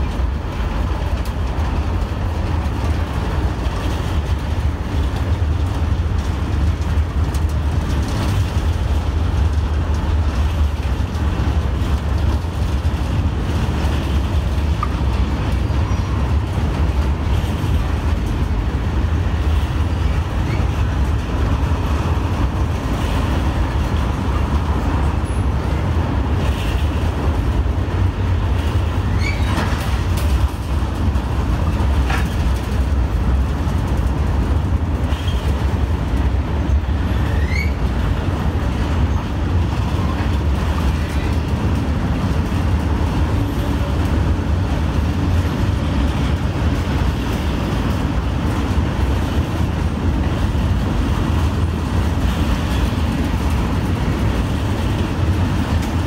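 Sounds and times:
train rumbling: 0.0 - 56.0
short high squeaks: 29.1 - 29.7, 37.2 - 37.8.

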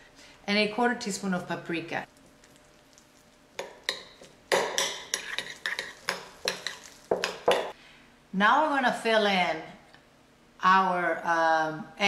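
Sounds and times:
metal spoon stirring in bowl: 2.2 - 7.8
spoon clinking against bowl: 3.6 - 7.7.

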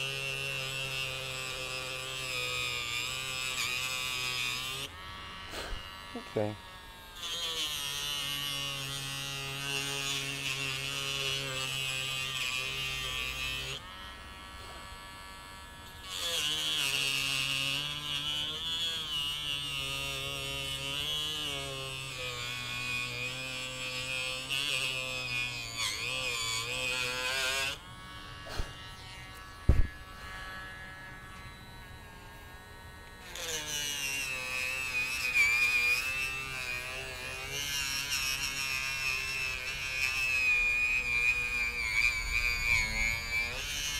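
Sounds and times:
rotary tool whining cutting wood: 0.0 - 43.9
sharp knocks: 29.7 - 30.0.

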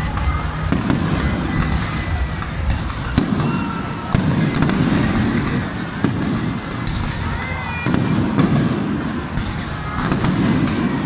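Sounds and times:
fireworks bangs and crackling pops: 0.0 - 11.0.

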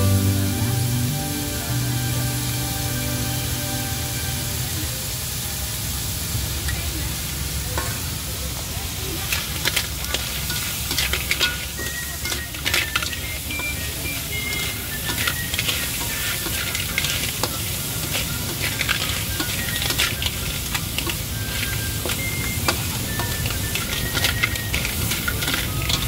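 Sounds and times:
food sizzling in a wok: 0.0 - 26.0
metal spatula scraping a wok: 9.2 - 26.0.

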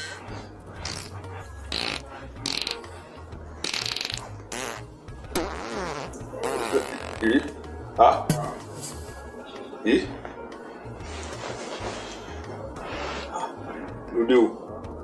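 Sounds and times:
comic fart sound effects: 0.8 - 3.0, 3.6 - 7.6.

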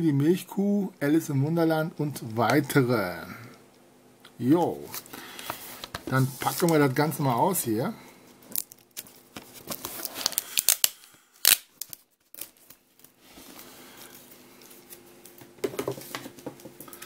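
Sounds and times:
plastic film tearing and crackling: 8.5 - 13.2.

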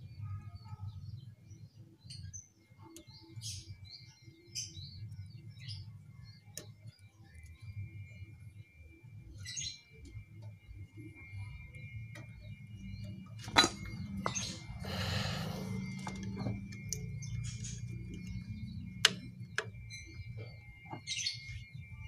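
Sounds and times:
faint bird chirps: 0.0 - 22.0
metal parts being handled: 13.4 - 14.8.

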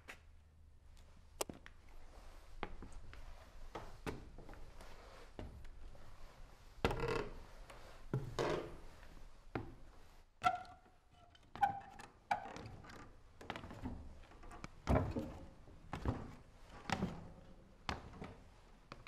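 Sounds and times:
short creak: 6.9 - 7.4.

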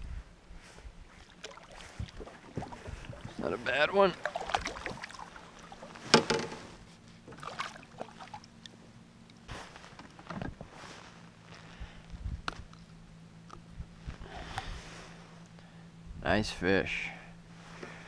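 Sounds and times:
steady low hum: 0.0 - 18.0
light knocks and handling: 6.0 - 7.4.

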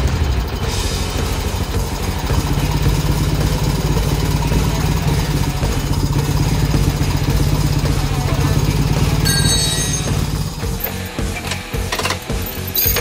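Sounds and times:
forklift engine running: 0.0 - 13.0.

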